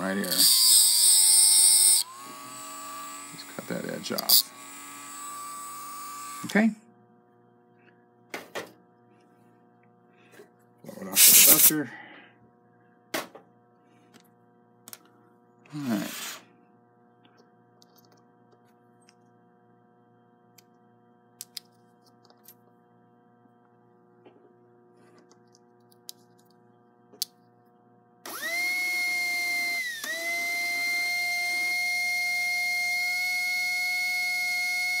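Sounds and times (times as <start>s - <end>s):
small motor high-pitched whine: 0.0s - 6.7s, 28.2s - 35.0s.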